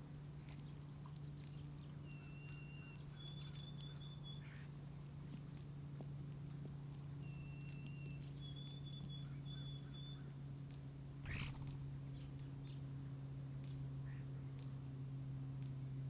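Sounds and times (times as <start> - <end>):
constant low hum: 0.0 - 16.0
faint whistled bird notes: 0.6 - 4.7, 7.2 - 10.4.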